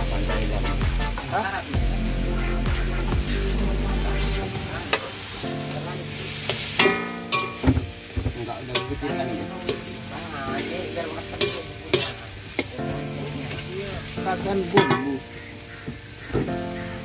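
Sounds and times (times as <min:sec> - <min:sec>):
rice sizzling in a wok: 0:00.0 - 0:17.0
metal spatula scraping wok: 0:06.2 - 0:10.0, 0:11.0 - 0:13.7, 0:14.4 - 0:15.2
spatula clinking on wok: 0:06.8 - 0:07.7, 0:08.7 - 0:09.9, 0:11.4 - 0:12.7, 0:14.7 - 0:15.1.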